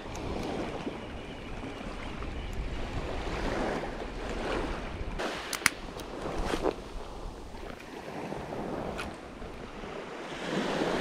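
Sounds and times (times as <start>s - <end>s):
wind on microphone: 0.0s - 11.0s
small waves washing on sand: 2.8s - 11.0s
sharp clicks: 5.5s - 6.1s.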